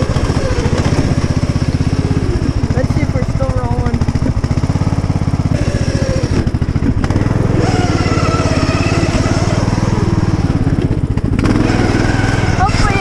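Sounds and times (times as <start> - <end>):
riding lawn mower engine: 0.0 - 13.0.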